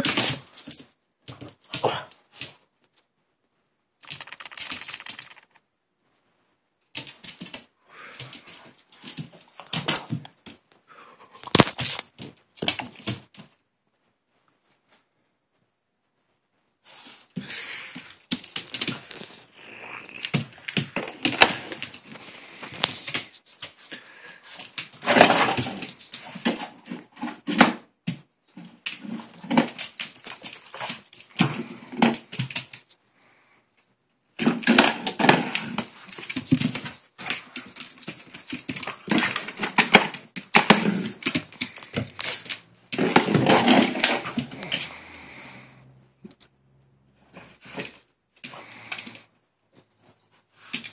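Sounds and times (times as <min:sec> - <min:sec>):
collar tags jingling: 0:04.0 - 0:05.5, 0:20.3 - 0:27.0, 0:28.8 - 0:32.8, 0:35.2 - 0:45.8
dog nails clicking and scrabbling: 0:04.0 - 0:05.6, 0:06.9 - 0:10.6, 0:11.4 - 0:13.6, 0:18.0 - 0:19.4, 0:20.1 - 0:33.0, 0:34.4 - 0:45.6.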